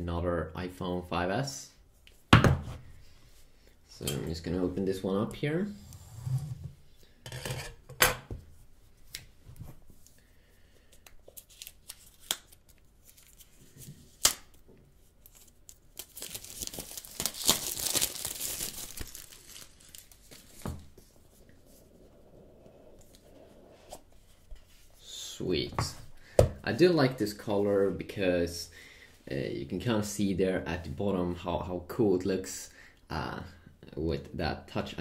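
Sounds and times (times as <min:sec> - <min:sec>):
plastic shrink-wrap tearing: 0:15.2 - 0:20.6.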